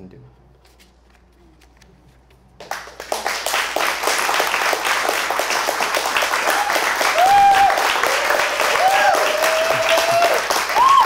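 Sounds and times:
audience applause: 2.6 - 11.0.

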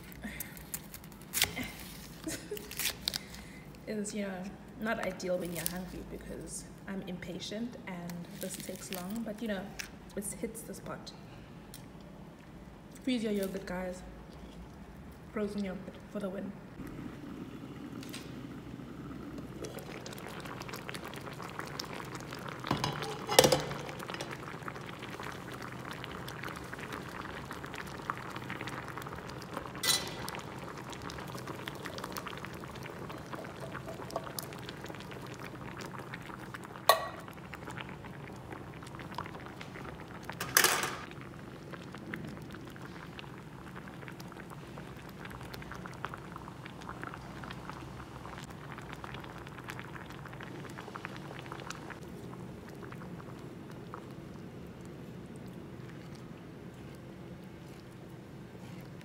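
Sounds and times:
curry bubbling in pot: 16.8 - 59.0
metal and glass clanking on pot: 22.7 - 23.9, 29.8 - 30.2.

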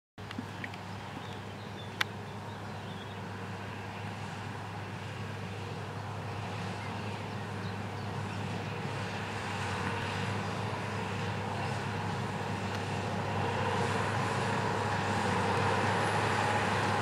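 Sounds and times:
tractor diesel engine running: 0.2 - 17.0.

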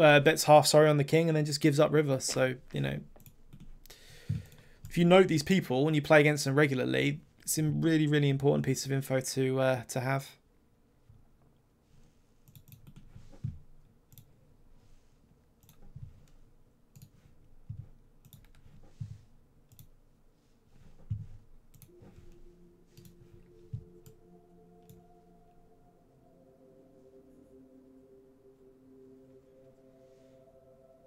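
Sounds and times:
computer mouse clicks: 12.4 - 13.1, 18.2 - 18.9, 19.7 - 19.9, 21.0 - 21.9
soft sustained chord: 21.8 - 31.0.

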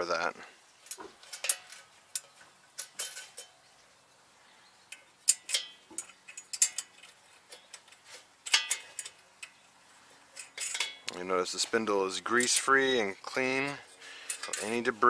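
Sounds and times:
metallic clinks of hand tools: 13.6 - 14.9.

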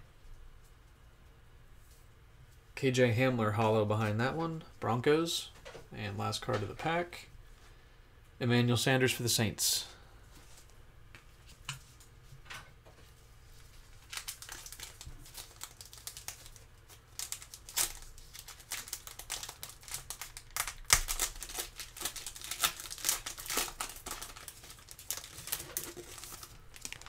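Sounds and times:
foil wrapper crinkling: 13.6 - 27.0.

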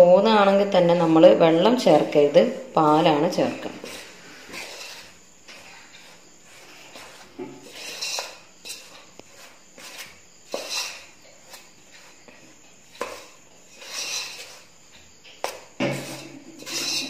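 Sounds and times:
fingers scraping steel bowl: 6.0 - 11.6, 13.0 - 14.7, 16.0 - 17.0.

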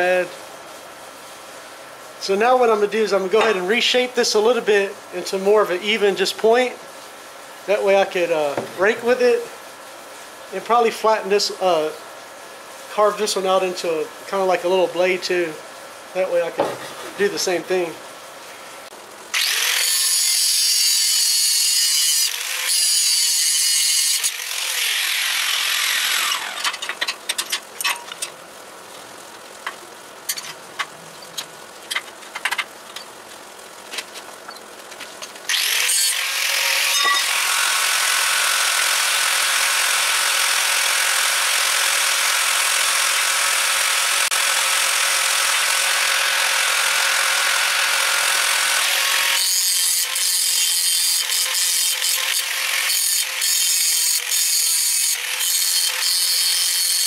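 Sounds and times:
angle grinder grinding steel: 19.4 - 27.2, 35.5 - 57.0.

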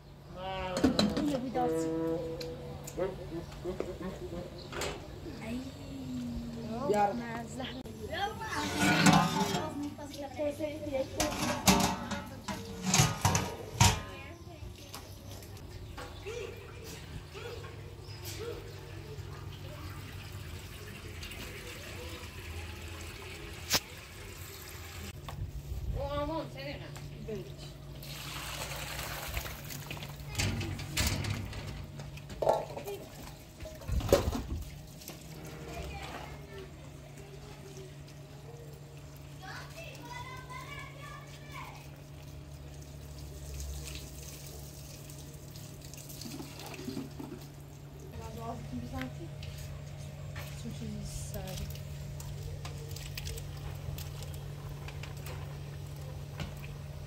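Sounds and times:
water running from hose into bowl: 6.6 - 31.2, 32.4 - 57.0
hose water pouring into metal pot: 8.2 - 10.3, 19.7 - 25.1, 28.0 - 30.5, 39.0 - 47.8
water pouring onto tiled floor: 18.8 - 25.2, 28.0 - 30.4, 32.4 - 48.6, 50.8 - 57.0.

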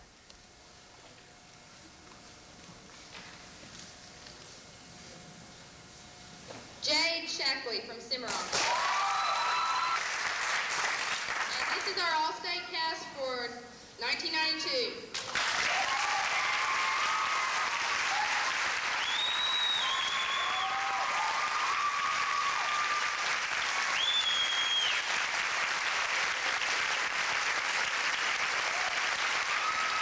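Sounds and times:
people cheering: 8.5 - 10.7, 15.3 - 25.3, 27.8 - 30.0
audience applauding: 8.5 - 12.0, 15.2 - 30.0
shrill whistles: 18.9 - 22.1, 23.9 - 25.1.

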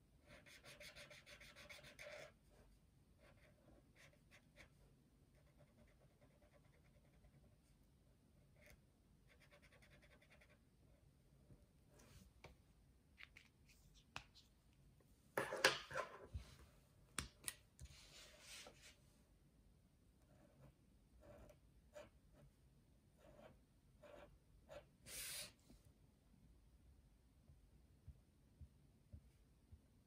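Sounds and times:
marker pen scratching on paper: 0.2 - 7.6, 8.5 - 10.6, 20.3 - 22.5, 23.2 - 25.3.

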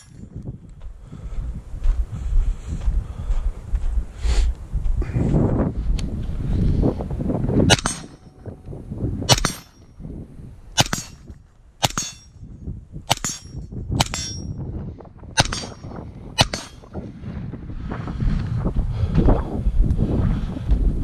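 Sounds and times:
suppressed rifle shots: 7.7 - 8.3, 9.3 - 9.8, 10.8 - 12.3, 15.4 - 16.9
bullet ringing on steel plate: 7.7 - 8.5, 9.3 - 10.0, 10.8 - 12.5, 13.1 - 14.6, 15.4 - 16.9.

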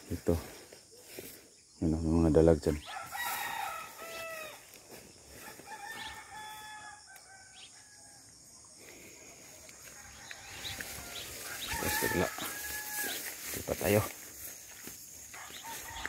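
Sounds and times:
roosters crowing faintly: 2.8 - 14.1, 15.2 - 16.0.

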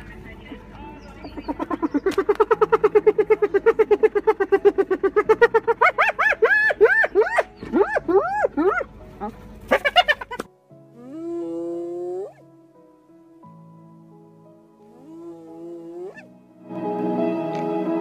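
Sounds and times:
hyena giggling and whooping: 1.2 - 8.8.

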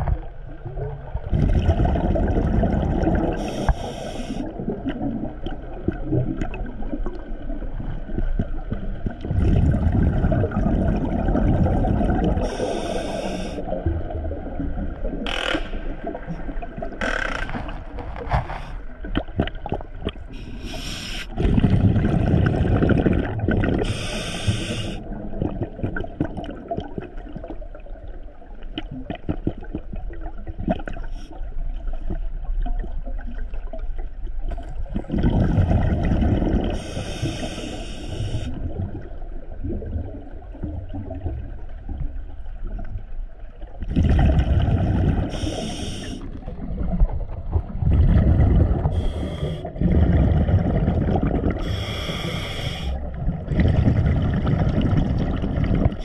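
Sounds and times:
bubbling exhalations underwater: 0.0 - 3.7, 4.4 - 27.8, 34.8 - 37.3, 43.8 - 56.0
regulator hissing inhalations: 3.4 - 4.5, 12.4 - 13.7, 20.4 - 21.4, 23.8 - 25.0, 36.8 - 38.6, 45.3 - 46.3, 49.0 - 49.7, 51.6 - 53.0.

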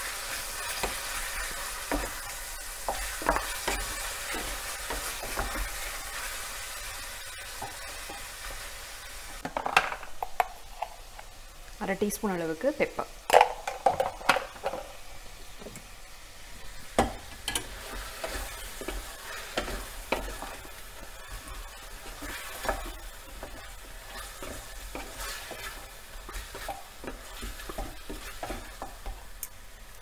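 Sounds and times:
chicken sizzling in hot oil: 0.0 - 9.4, 14.9 - 30.0
spatula scraping and knocking pot: 0.6 - 5.9, 16.9 - 29.3.

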